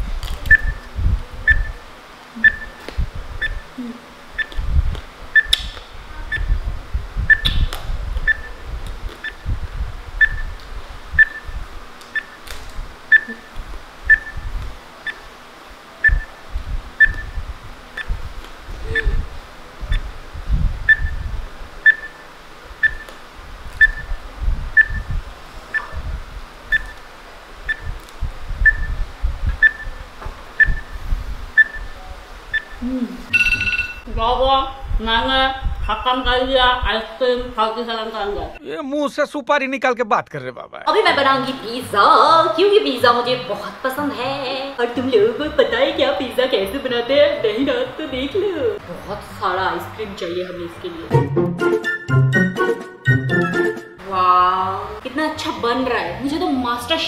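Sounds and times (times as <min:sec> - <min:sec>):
timer ticking: 0:00.5 - 0:00.8, 0:01.5 - 0:01.8, 0:02.4 - 0:02.8, 0:03.4 - 0:03.6, 0:04.4 - 0:04.6, 0:07.3 - 0:07.6, 0:08.2 - 0:08.5, 0:09.2 - 0:09.4, 0:10.2 - 0:10.5, 0:11.2 - 0:11.5, 0:12.2 - 0:12.4, 0:13.1 - 0:13.4, 0:14.1 - 0:14.4, 0:16.0 - 0:16.3, 0:17.0 - 0:17.4, 0:20.9 - 0:21.2, 0:21.8 - 0:22.2, 0:22.8 - 0:23.1, 0:23.8 - 0:24.1, 0:24.8 - 0:25.1, 0:26.7 - 0:27.0, 0:27.7 - 0:28.0, 0:28.6 - 0:28.9, 0:29.6 - 0:29.9, 0:30.6 - 0:30.9, 0:31.6 - 0:31.9, 0:51.1 - 0:54.0.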